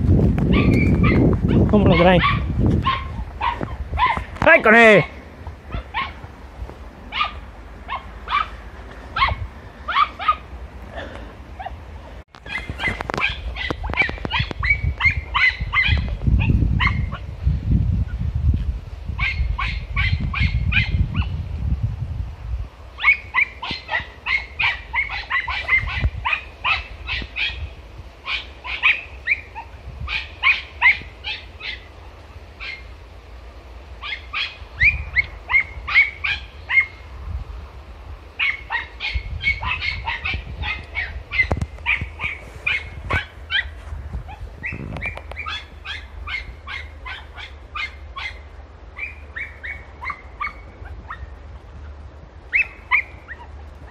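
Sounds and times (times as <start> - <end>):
puppies yelping: 0.5 - 4.4, 5.6 - 6.3, 7.1 - 10.5, 12.4 - 17.3, 19.2 - 21.3, 23.0 - 32.0, 32.6 - 32.9, 34.0 - 37.0, 38.4 - 53.9.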